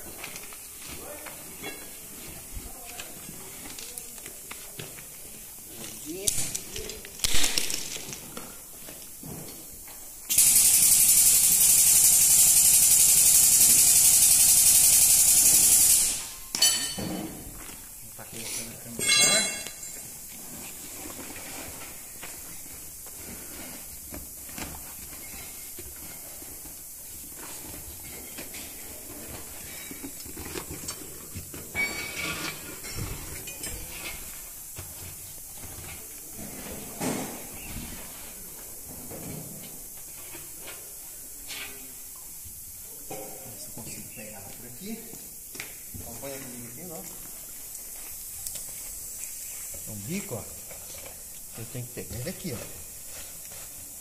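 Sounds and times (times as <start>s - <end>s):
steady hiss: 0.0s - 54.0s
compressed air hissing: 9.7s - 16.5s, 43.6s - 54.0s
metallic clang: 16.4s - 17.5s, 19.0s - 20.0s.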